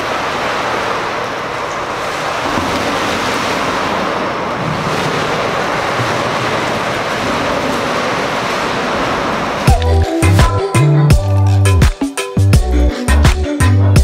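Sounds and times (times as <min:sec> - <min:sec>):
water splashing in swimming pool: 0:00.0 - 0:09.9.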